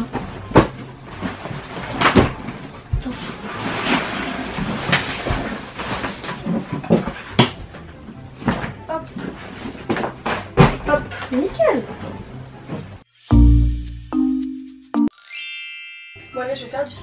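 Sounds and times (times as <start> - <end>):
objects thumping on bed and floor: 0.0 - 3.2, 9.8 - 11.1.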